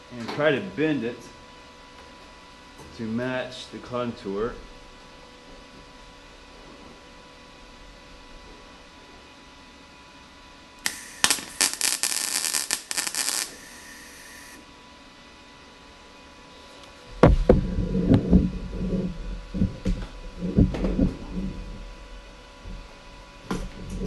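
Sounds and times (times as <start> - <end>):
crackling welding arc: 10.8 - 14.6
low thumps and rustling: 17.1 - 24.0.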